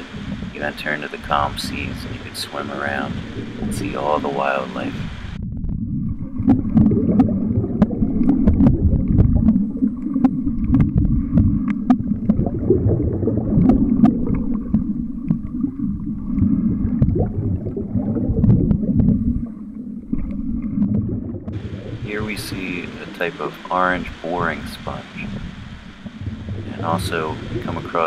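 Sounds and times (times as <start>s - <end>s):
muffled underwater surf rumble: 0.0s - 28.0s
sharp underwater clicks and crackles: 4.8s - 23.3s.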